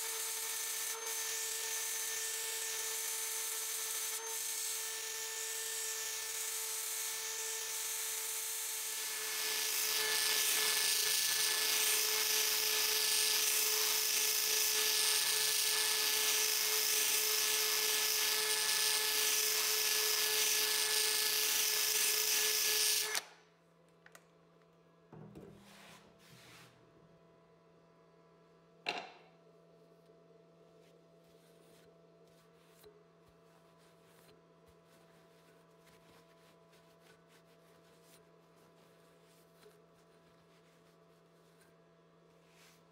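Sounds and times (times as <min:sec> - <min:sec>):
rotary tool polishing steel: 0:00.0 - 0:23.2.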